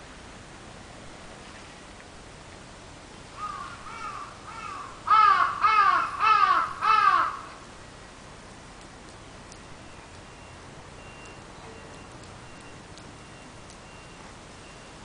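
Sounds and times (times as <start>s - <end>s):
crow cawing: 3.4s - 7.6s.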